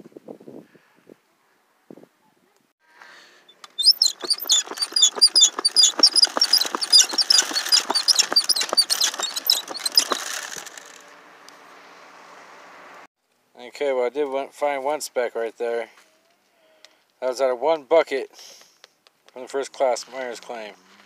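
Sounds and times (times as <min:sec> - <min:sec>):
gravel rattling through dry washer: 0:03.8 - 0:11.0.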